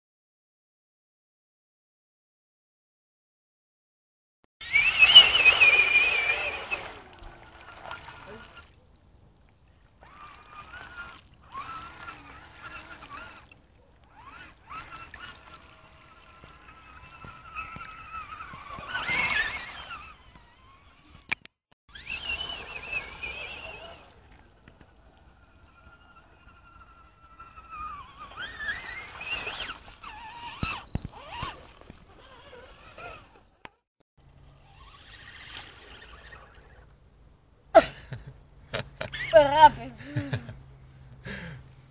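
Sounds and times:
toy truck motor whining: 4.6s - 8.7s, 10.0s - 33.8s, 34.5s - 36.9s, 39.0s - 40.0s
tyres churning through mud: 4.6s - 8.7s, 10.0s - 21.1s, 21.9s - 33.4s.

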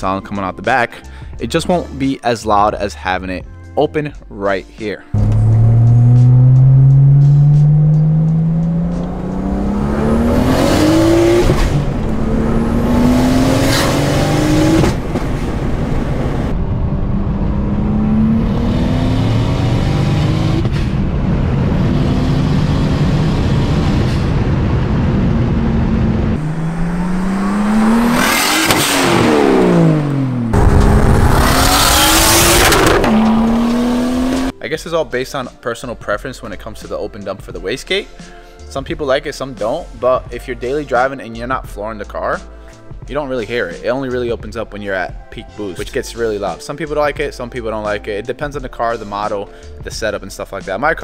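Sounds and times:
car engine accelerating hard: 5.2s - 34.5s
car passing by: 25.8s - 34.5s.

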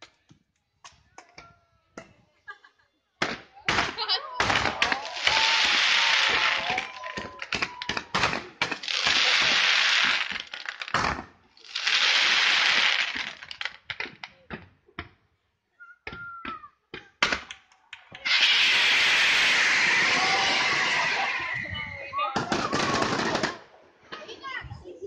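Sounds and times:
fireworks cracks and bangs: 3.2s - 15.2s, 16.4s - 23.8s
fireworks crackling hiss: 4.5s - 14.3s, 18.2s - 23.5s.

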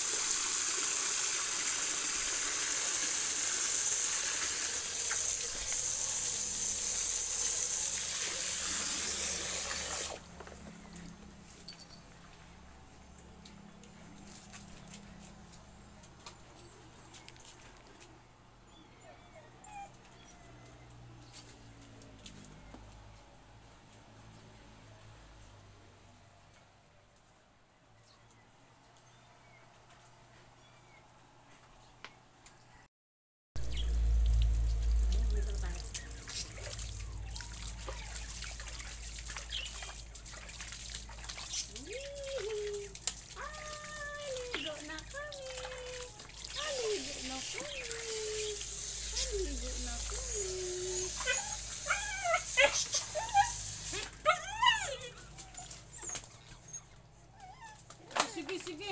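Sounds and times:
water splashing and trickling: 0.0s - 15.7s, 33.6s - 56.7s
dog whimpering: 18.7s - 20.6s, 46.5s - 57.9s
puppy whining: 18.7s - 20.8s, 46.4s - 58.2s.

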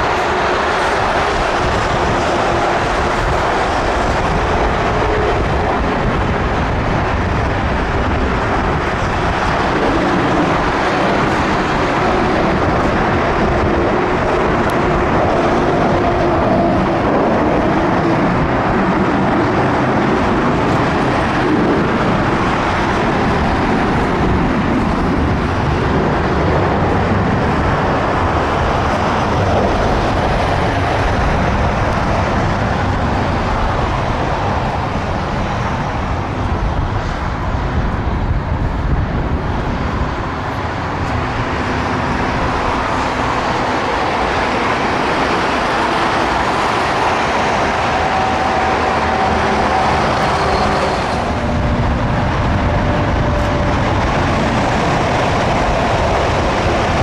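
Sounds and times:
jet engines roaring at taxi power: 0.0s - 57.0s.

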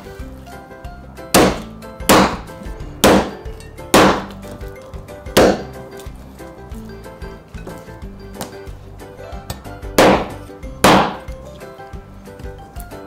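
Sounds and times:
background music: 0.0s - 13.0s
cleaver chopping fish on board: 1.3s - 3.4s, 4.0s - 4.4s, 5.4s - 5.8s, 9.5s - 11.3s.

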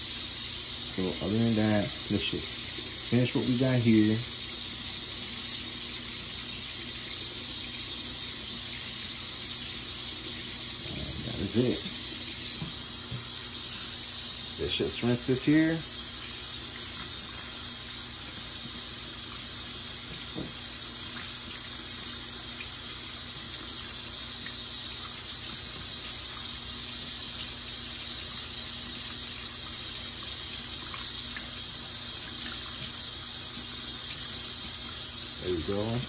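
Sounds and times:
tap running into sink: 11.7s - 13.4s, 20.0s - 21.3s.

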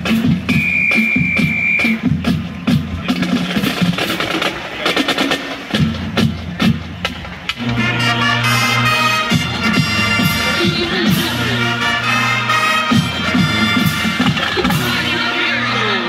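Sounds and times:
marching band drum beat: 0.0s - 15.2s
brass playing held chords: 7.6s - 16.0s.

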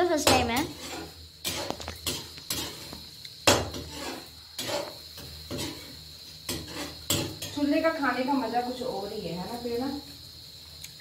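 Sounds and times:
utensil scraping a metal pan: 0.2s - 7.8s.

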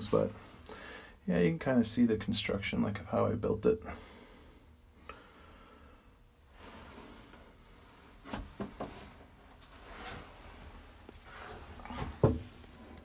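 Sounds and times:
soft rustling: 6.5s - 13.0s.

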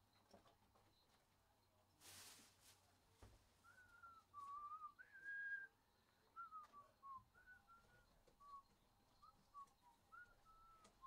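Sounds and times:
faint whistling of a tune: 3.5s - 11.0s.

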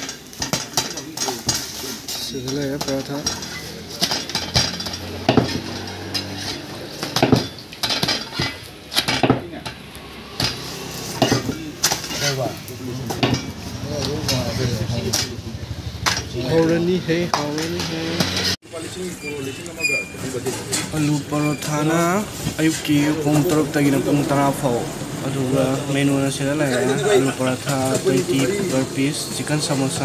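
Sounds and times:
light sizzle of frying: 0.0s - 15.6s
metal spatula scraping iron griddle: 0.0s - 24.6s.

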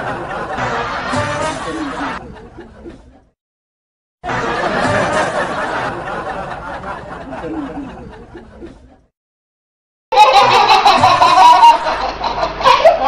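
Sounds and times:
people laughing: 0.0s - 3.4s, 4.2s - 9.1s, 10.1s - 13.0s.

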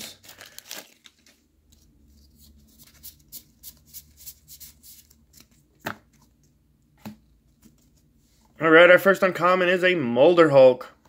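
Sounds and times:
cards swishing: 1.8s - 5.6s.

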